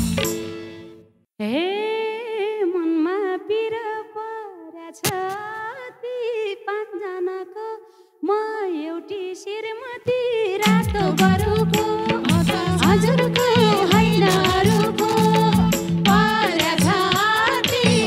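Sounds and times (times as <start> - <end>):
woman singing unaccompanied: 1.4 - 18.0.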